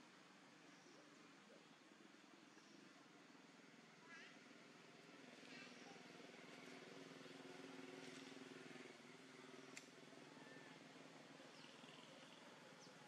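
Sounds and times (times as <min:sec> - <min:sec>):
faint sharp click: 0:09.7 - 0:10.0.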